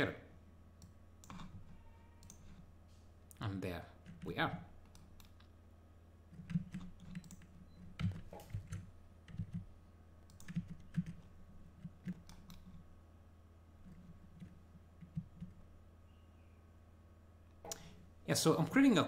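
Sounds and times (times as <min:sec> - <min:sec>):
faint low hum: 0:00.0 - 0:19.0
keyboard and mouse clicking: 0:00.8 - 0:02.6, 0:04.1 - 0:05.5, 0:06.3 - 0:09.7, 0:10.3 - 0:12.8.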